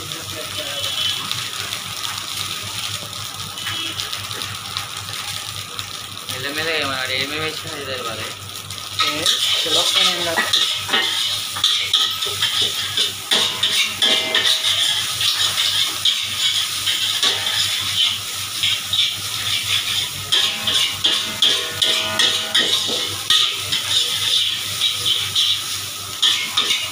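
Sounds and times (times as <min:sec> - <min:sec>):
rice sizzling: 0:00.0 - 0:26.9
metal spatula scraping a wok: 0:09.1 - 0:26.9.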